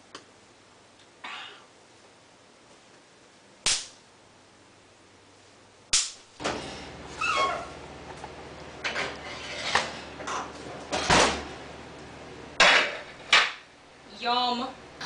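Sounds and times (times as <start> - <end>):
low steady hum: 0.0 - 15.0
metal tin scraping on oven rack: 8.8 - 10.0.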